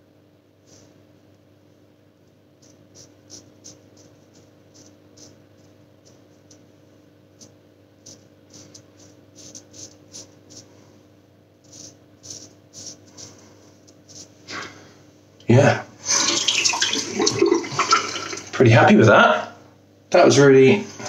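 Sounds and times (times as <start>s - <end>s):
steady low hum: 0.0s - 21.0s
razor scraping stubble: 7.4s - 10.7s, 11.6s - 14.4s.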